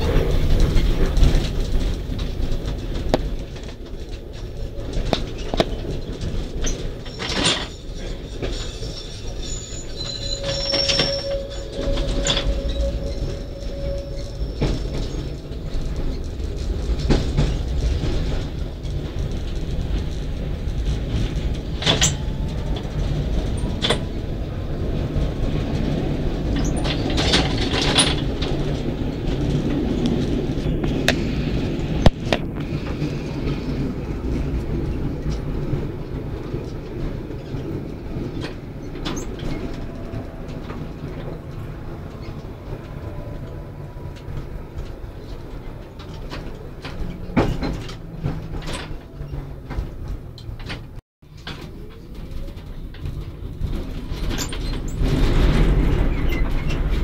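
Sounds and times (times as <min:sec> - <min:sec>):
tram wheels rumbling on rails: 0:00.0 - 0:57.0
wheel squeal: 0:05.2 - 0:16.4, 0:26.4 - 0:28.8, 0:54.0 - 0:57.0.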